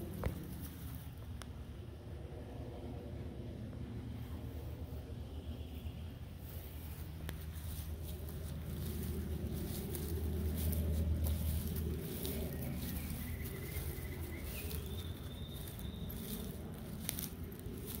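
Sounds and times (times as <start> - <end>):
footsteps rustling through leaves: 0.0 - 1.2, 6.3 - 18.0
low rumble: 0.0 - 18.0.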